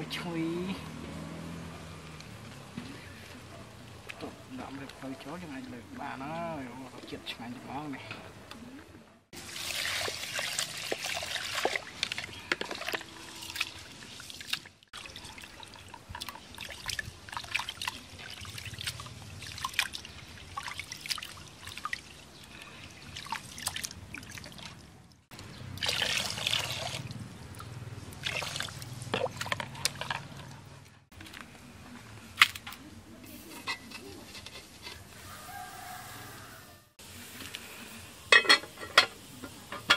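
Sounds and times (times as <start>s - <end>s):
water sloshing as rice is rubbed: 9.4s - 24.8s
water pouring from a jug: 9.4s - 25.0s, 25.8s - 30.5s.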